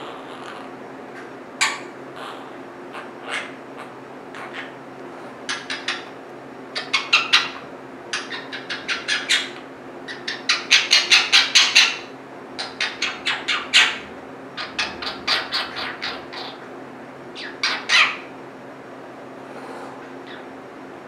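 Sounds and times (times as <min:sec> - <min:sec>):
parakeet chirping: 0:05.5 - 0:06.1, 0:06.8 - 0:14.0, 0:14.6 - 0:16.6, 0:17.4 - 0:18.3, 0:20.2 - 0:20.5.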